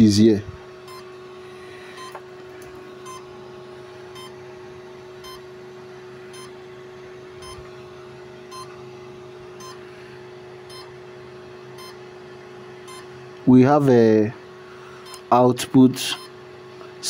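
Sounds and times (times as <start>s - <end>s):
steady electrical hum: 0.0s - 17.0s
short electronic beeps: 0.9s - 1.1s, 1.9s - 2.2s, 3.0s - 3.2s, 6.3s - 6.5s, 7.4s - 7.6s, 10.7s - 10.9s, 11.8s - 12.0s.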